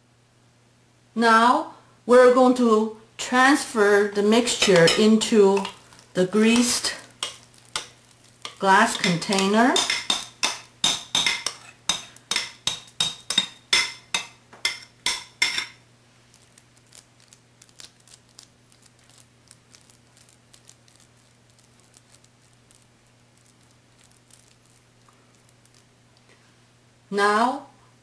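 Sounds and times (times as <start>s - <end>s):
metal spoon clinking on glass bowl: 4.5s - 5.8s, 6.6s - 15.8s.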